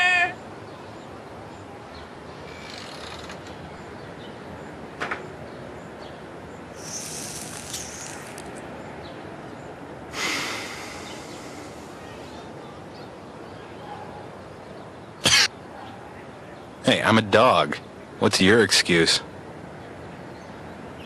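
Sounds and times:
steady background hiss: 0.0s - 21.0s.

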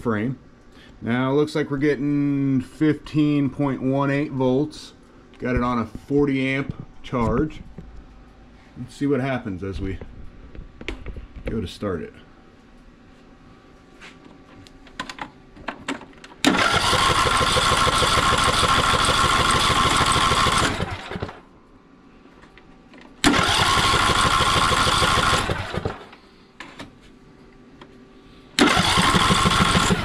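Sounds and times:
starter cranking mower engine: 16.4s - 21.4s, 23.2s - 26.1s, 28.6s - 30.0s.

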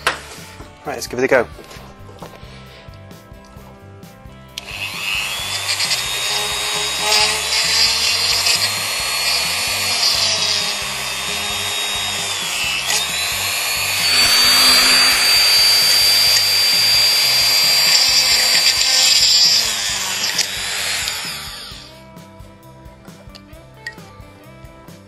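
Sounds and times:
rotary tool drilling whine: 4.6s - 22.0s.

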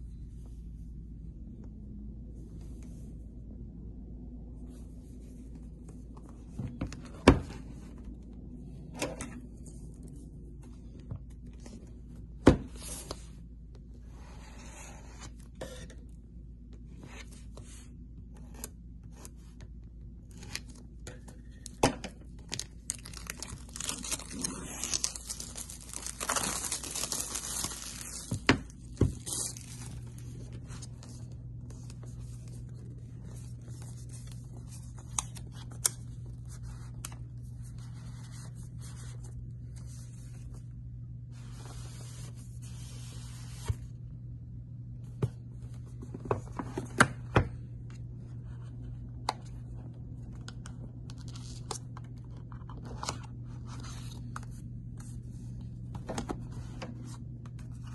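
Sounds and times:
cardboard seal tearing and scraping: 23.0s - 28.3s.

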